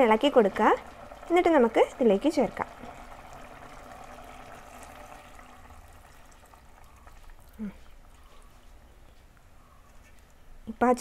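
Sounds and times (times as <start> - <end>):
liquid pouring into pot: 0.0 - 8.7
curry sizzling and boiling: 0.0 - 9.1.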